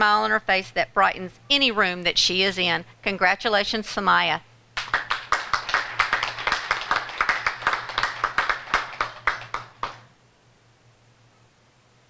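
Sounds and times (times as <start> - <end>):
group of people clapping: 4.8 - 10.1.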